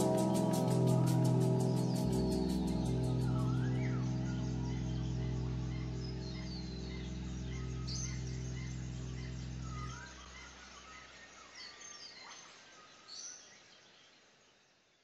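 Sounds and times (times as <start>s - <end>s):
low sustained music chord: 0.0s - 10.6s
small birds chirping: 0.0s - 14.2s.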